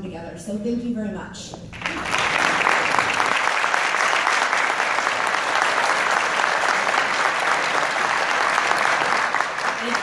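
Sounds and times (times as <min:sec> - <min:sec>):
audience applauding: 0:01.8 - 0:10.0.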